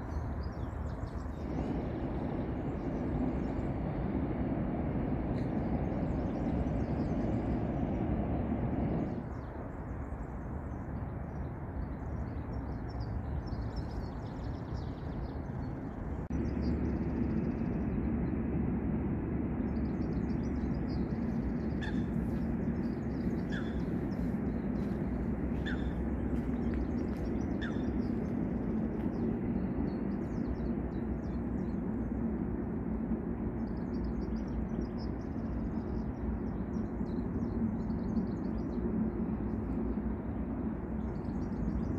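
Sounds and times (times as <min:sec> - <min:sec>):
small birds chirping: 0:00.0 - 0:18.2, 0:19.6 - 0:32.2
steady low rumble: 0:00.0 - 0:41.9.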